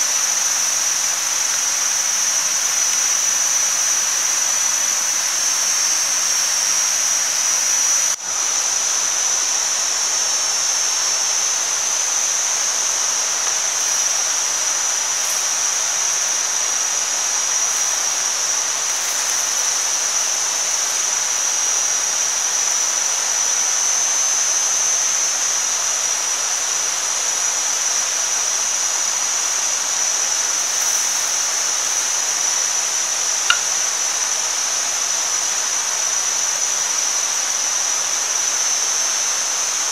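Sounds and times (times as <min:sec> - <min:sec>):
high-pitched whine: 0:00.0 - 0:39.9
meat sizzling on hot stone: 0:12.9 - 0:21.8, 0:30.5 - 0:32.9, 0:33.5 - 0:33.8
small pop: 0:33.5 - 0:33.8.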